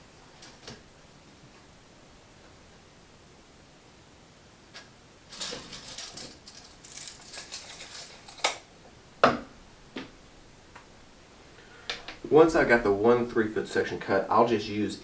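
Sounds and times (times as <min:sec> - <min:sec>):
tape measure blade rattling: 0:05.3 - 0:08.6.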